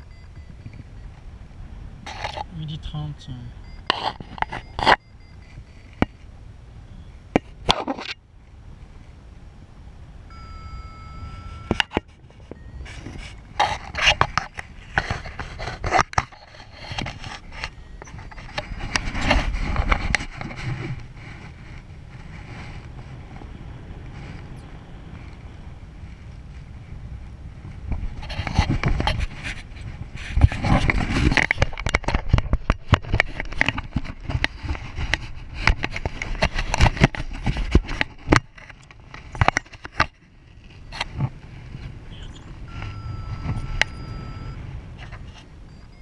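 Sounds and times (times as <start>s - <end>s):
brief steady tone: 0.0s - 1.2s, 2.4s - 7.2s, 10.3s - 16.9s, 17.5s - 19.9s, 42.1s - 44.7s, 45.6s - 46.0s
wind rushing over microphone: 11.0s - 46.0s
rustling and small knocks: 11.6s - 27.0s, 27.6s - 46.0s.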